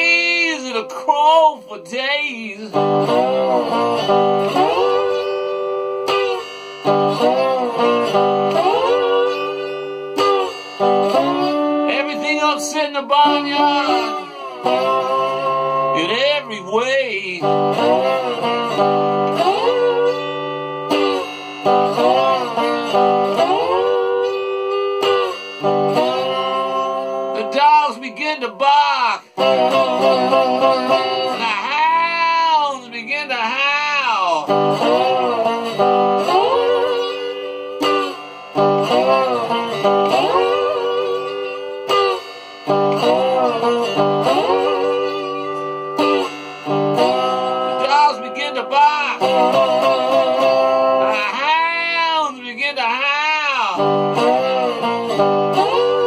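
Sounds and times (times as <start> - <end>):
slide electric guitar blues: 0.0 - 56.0.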